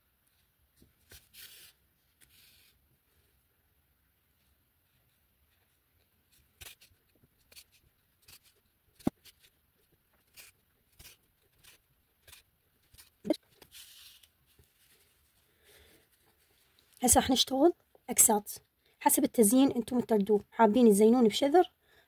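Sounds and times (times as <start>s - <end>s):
needle and yarn clicks and rustles: 4.3s - 17.1s
yarn drawn through hissing rustle: 13.0s - 15.5s.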